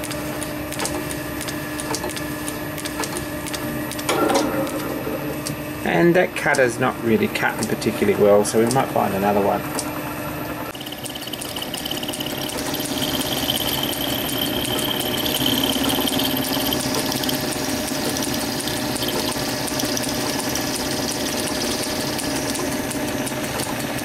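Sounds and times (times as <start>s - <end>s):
lathe motor hum: 7.1s - 24.0s
thin high whine: 10.7s - 17.4s.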